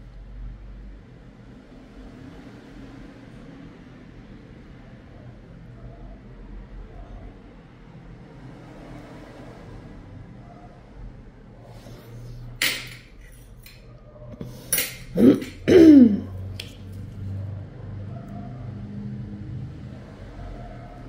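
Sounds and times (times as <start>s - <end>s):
metal instruments clinking: 12.6s - 13.9s, 14.6s - 15.6s
person's short voiced sounds: 15.2s - 16.4s.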